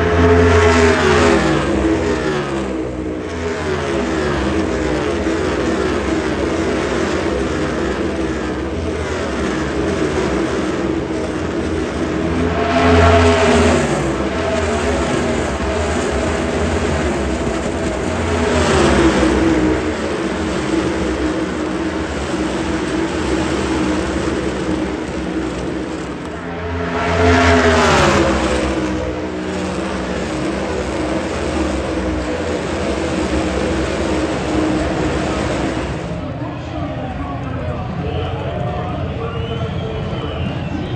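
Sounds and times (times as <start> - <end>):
race cars passing: 0.0 - 40.9.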